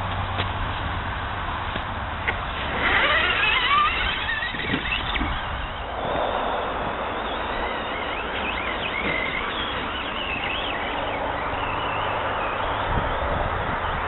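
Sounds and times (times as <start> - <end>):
electric motor whining: 2.3 - 13.8
steady rushing hiss: 3.5 - 13.6.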